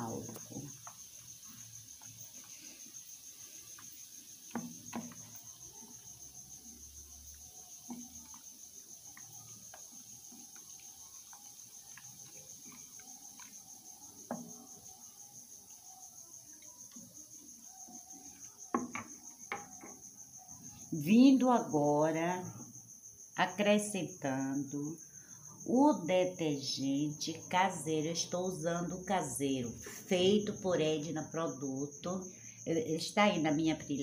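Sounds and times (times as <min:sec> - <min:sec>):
spoon stirring foamy liquid: 0:00.2 - 0:19.9
spoon knocking on glass: 0:18.7 - 0:20.0.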